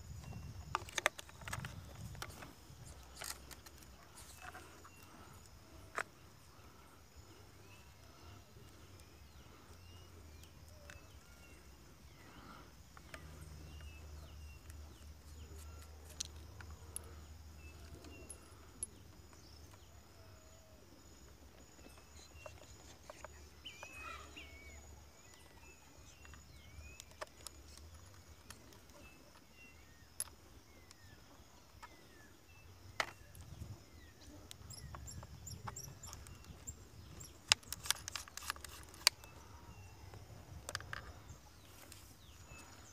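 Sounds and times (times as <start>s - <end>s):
bird chirps: 3.2s - 42.9s
metal detector handling clicks: 35.1s - 39.8s
sharp clicks: 35.2s - 39.4s.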